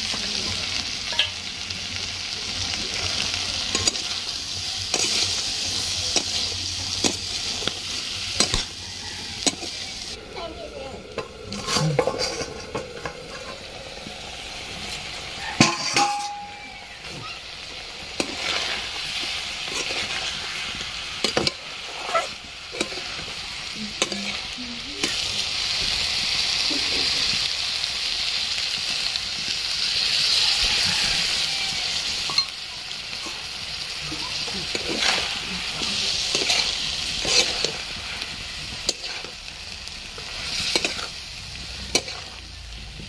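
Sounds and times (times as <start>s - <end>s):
food sizzling in a metal pan: 0.0s - 43.0s
metal spatula scraping pan: 11.1s - 13.7s, 14.8s - 17.2s, 18.1s - 25.3s, 34.3s - 39.4s, 40.2s - 41.2s, 41.8s - 42.4s.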